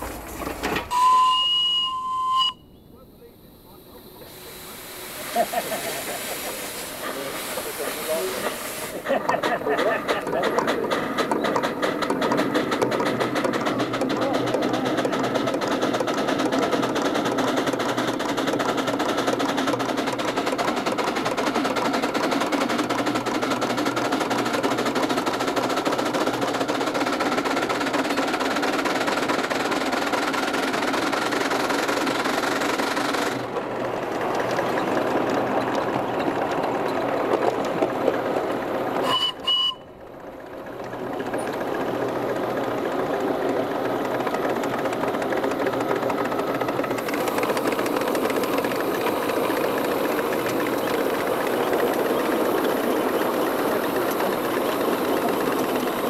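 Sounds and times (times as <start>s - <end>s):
steam locomotive running: 0.0s - 56.0s
steam whistle toots: 0.9s - 2.7s, 39.0s - 39.9s.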